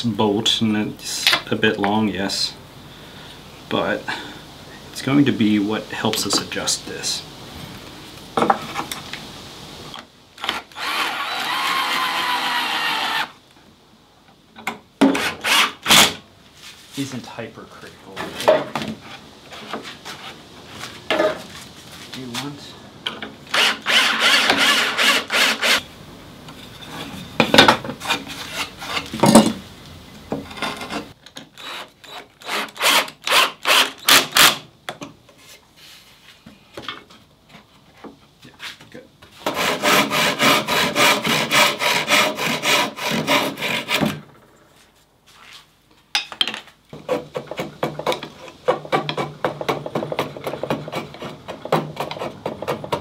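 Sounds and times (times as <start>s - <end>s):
hand tools rasping wood: 23.5s - 25.8s, 27.9s - 29.2s, 39.4s - 44.2s, 47.0s - 53.0s.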